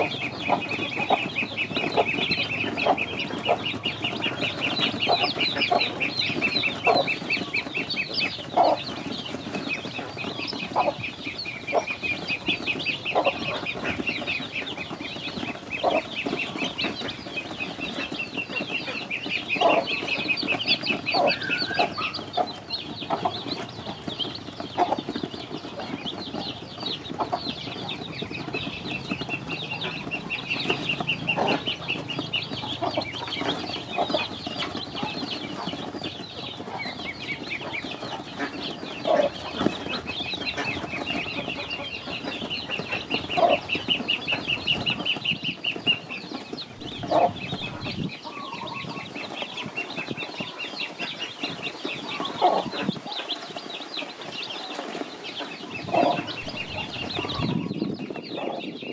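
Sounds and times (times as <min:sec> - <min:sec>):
ducklings and chicks peeping: 0:00.0 - 0:58.9.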